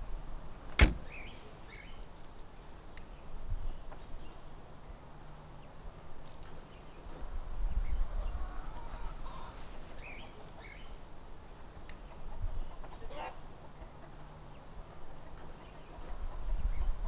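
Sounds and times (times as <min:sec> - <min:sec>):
clucking bird calls: 0:11.8 - 0:17.0.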